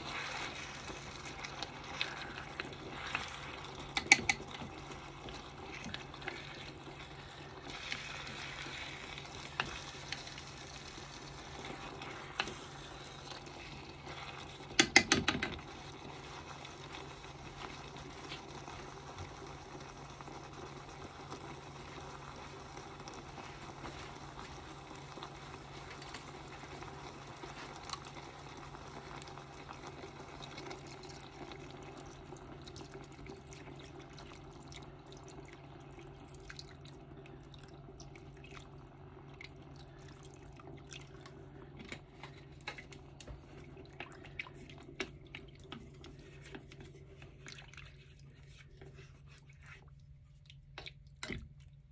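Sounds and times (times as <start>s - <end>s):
food sizzling in a pot: 0.0s - 32.4s.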